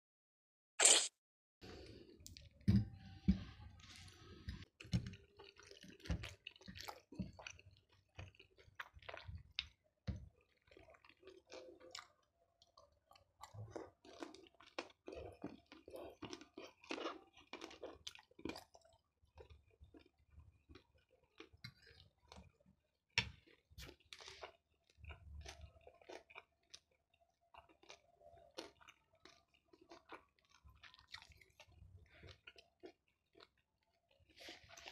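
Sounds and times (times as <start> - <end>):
person chewing food: 0.8 - 1.1, 3.3 - 9.8, 10.4 - 22.6, 23.2 - 34.9
wet smacking mouth noises: 0.8 - 1.1.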